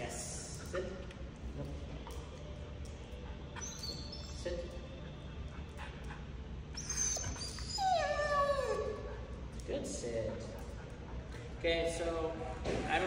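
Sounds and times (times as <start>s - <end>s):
dog whining: 3.5s - 4.4s, 6.7s - 9.4s.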